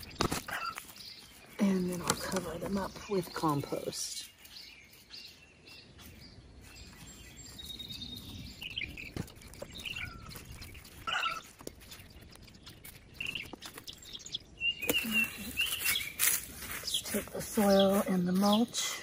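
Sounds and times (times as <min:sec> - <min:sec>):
bird chirps: 0:00.0 - 0:19.0
rustling and scraping of soil: 0:00.0 - 0:19.0.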